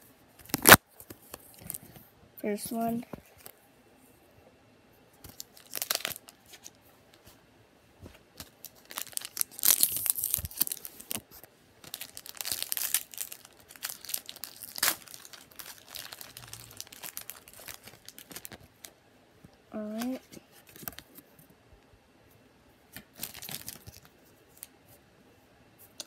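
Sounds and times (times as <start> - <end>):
foil wrapper tearing and crinkling: 0.5 - 0.8, 5.3 - 6.8, 8.4 - 11.2, 11.8 - 18.9, 23.1 - 24.7.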